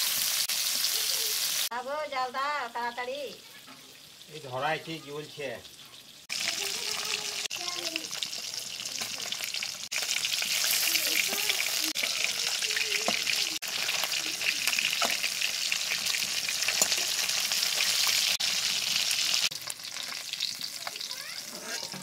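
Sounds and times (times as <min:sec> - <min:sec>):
fish sizzling in hot oil: 0:00.0 - 0:22.0
metal spatula stirring: 0:10.0 - 0:18.3, 0:19.8 - 0:22.0.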